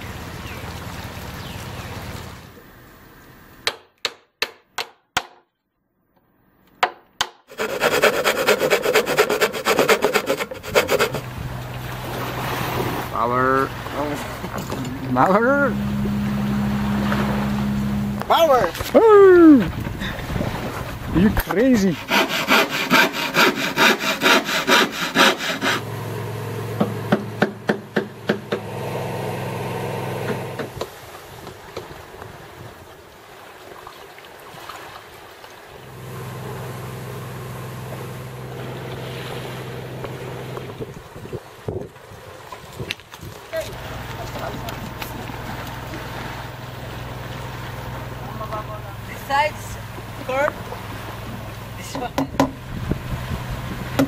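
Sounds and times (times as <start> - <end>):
hammer striking chisel: 3.6 - 5.4, 6.8 - 11.2, 26.8 - 28.7
handsaw cutting plywood: 7.4 - 11.3, 21.4 - 25.8, 30.0 - 30.8
steady low hum: 7.5 - 30.8, 35.9 - 41.0, 43.7 - 54.0.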